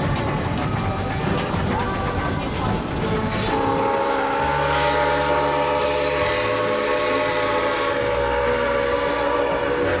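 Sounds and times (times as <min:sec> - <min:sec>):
rumble of moving train: 0:00.0 - 0:10.0
steam locomotive whistle: 0:03.3 - 0:10.0.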